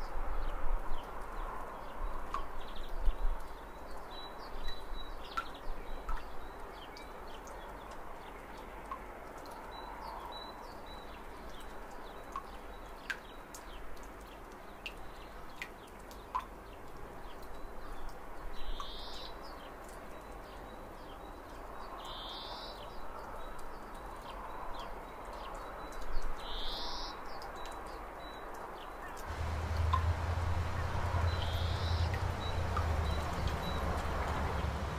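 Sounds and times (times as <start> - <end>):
birds chirping: 29.1 - 34.9
flowing water hiss: 29.2 - 34.9.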